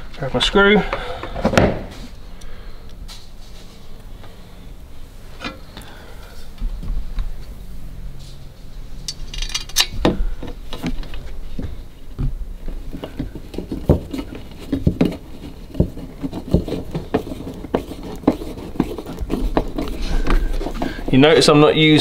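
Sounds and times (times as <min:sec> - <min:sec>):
screwdriver clicking and scraping metal: 0:09.1 - 0:10.0.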